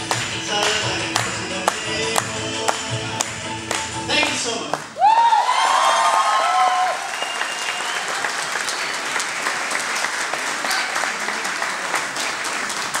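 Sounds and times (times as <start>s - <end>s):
audience applauding: 0.0s - 13.0s
person cheering: 5.0s - 7.2s.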